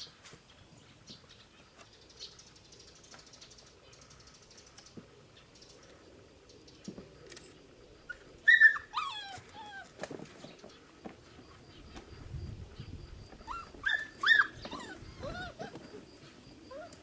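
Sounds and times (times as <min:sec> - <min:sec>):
puppy yelping: 0:08.1 - 0:09.9, 0:13.4 - 0:16.0.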